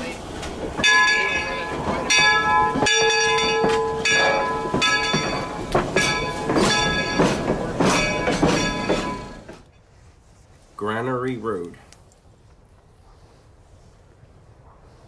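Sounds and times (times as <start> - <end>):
steam locomotive bell ringing: 0.8 - 9.6.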